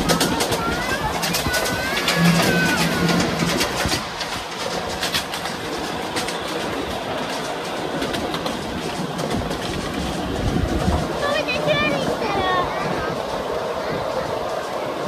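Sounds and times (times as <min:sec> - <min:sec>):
miniature train wheels rolling: 0:00.0 - 0:15.0
wheels clicking over rail joints: 0:00.0 - 0:15.0.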